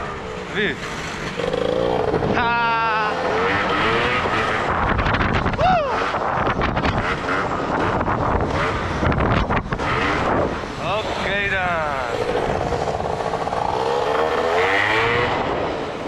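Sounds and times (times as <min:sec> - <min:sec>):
scooter engine revving: 0:00.0 - 0:05.2, 0:06.0 - 0:15.9
wind rushing over microphone: 0:03.3 - 0:16.0.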